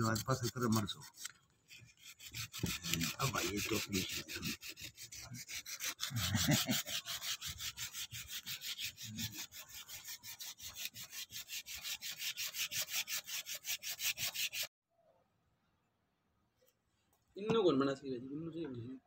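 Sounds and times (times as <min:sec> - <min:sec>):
sanding wood back and forth: 0:00.0 - 0:14.7.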